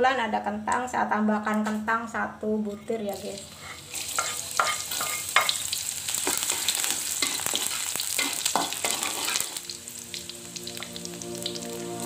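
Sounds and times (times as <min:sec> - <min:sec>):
shallots sizzling in oil: 0:02.8 - 0:12.0
metal spatula scraping pan: 0:03.5 - 0:05.6, 0:06.2 - 0:09.6
background music: 0:09.6 - 0:12.0.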